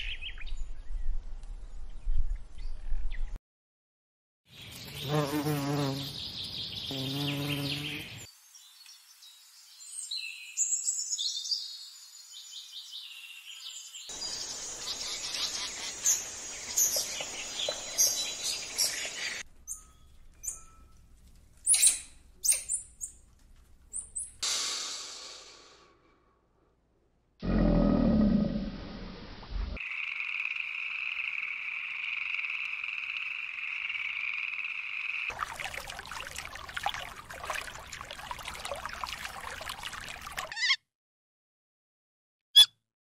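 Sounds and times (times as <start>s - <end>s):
bird chirping and twittering: 4.6s - 20.9s, 21.6s - 23.2s
bee buzzing: 5.0s - 6.1s, 6.9s - 8.2s.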